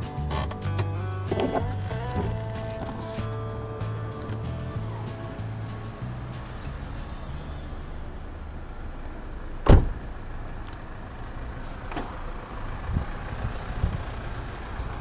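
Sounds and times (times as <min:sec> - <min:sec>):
car door shutting: 0:00.3 - 0:05.5, 0:09.6 - 0:10.2
steady low rumble: 0:01.0 - 0:15.0.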